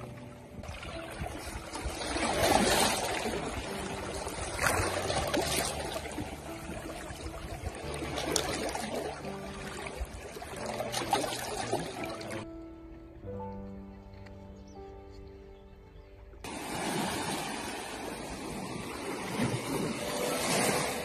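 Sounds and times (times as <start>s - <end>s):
small waves washing over rocks: 16.5s - 21.0s.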